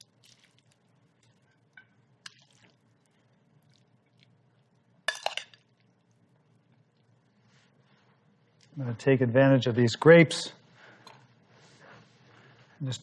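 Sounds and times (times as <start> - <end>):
wet salad squishing: 0.0 - 1.7, 2.3 - 4.4.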